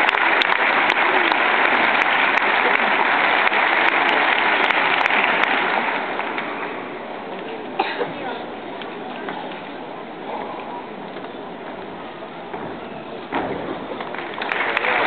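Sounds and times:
crowd applauding: 0.0s - 7.0s, 13.8s - 15.0s.

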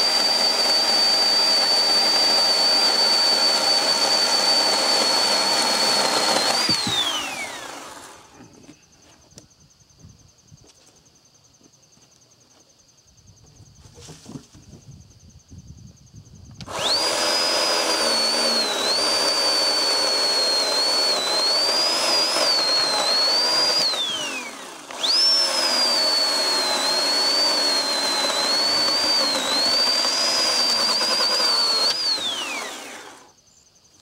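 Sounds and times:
electric chainsaw cutting log: 0.0s - 8.6s, 16.6s - 33.4s.

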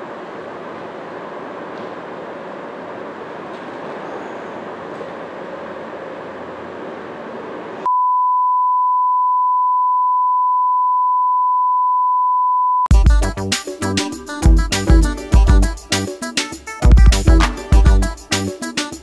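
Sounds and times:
music: 12.9s - 19.0s.

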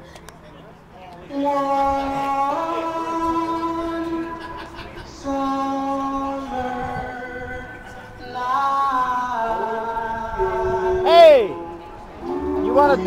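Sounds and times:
person singing long notes: 1.3s - 4.5s, 5.1s - 13.0s
music: 8.6s - 13.0s.

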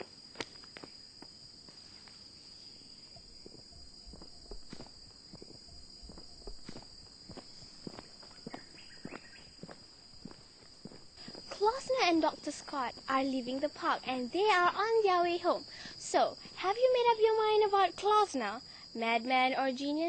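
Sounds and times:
footsteps walking away: 3.2s - 12.0s.

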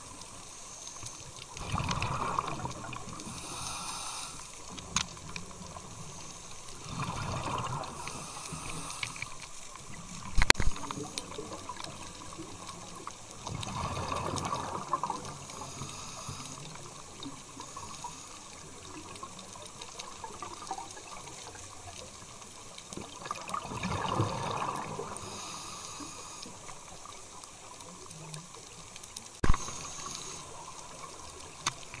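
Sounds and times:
steady watery hiss: 0.0s - 32.0s
diver's exhaled bubbles underwater: 1.5s - 3.8s, 6.7s - 9.2s, 9.8s - 15.6s, 23.0s - 25.4s.

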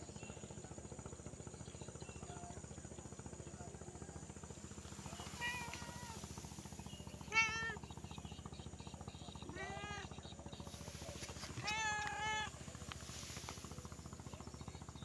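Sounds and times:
low pulsing hum: 0.0s - 15.0s
cat meowing: 5.2s - 6.2s, 7.3s - 7.8s, 9.5s - 10.1s, 11.5s - 12.5s.

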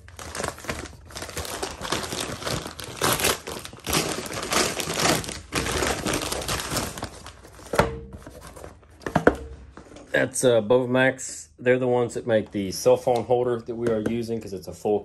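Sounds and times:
paper bag crinkling: 0.0s - 7.8s.

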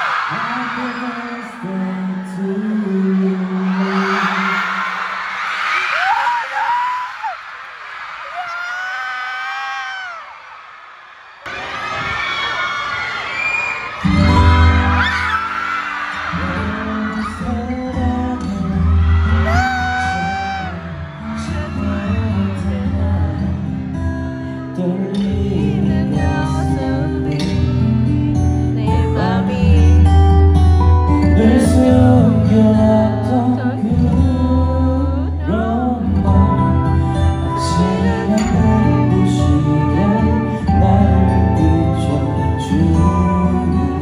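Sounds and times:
man singing into a microphone: 0.2s - 5.2s, 16.3s - 30.5s, 31.2s - 44.0s
backing track over loudspeakers: 16.1s - 44.0s.

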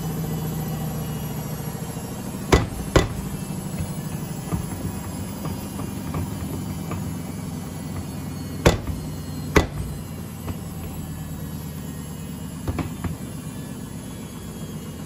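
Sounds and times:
washing machine drum turning: 2.2s - 11.1s
sharp knocks: 2.5s - 3.5s, 8.6s - 10.1s.

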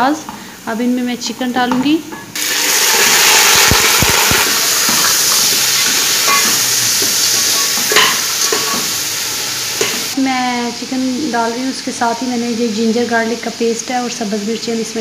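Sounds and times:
chicken sizzling in hot oil: 2.4s - 10.2s
fork scraping and knocking pot: 3.7s - 8.9s.

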